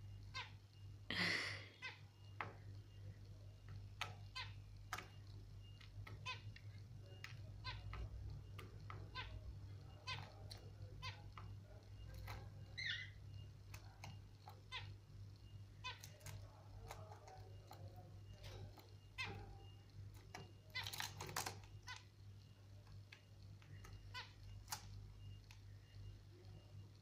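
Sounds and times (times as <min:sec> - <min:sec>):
lovebird chirping and squeaking: 0:03.6 - 0:22.2, 0:23.6 - 0:26.0.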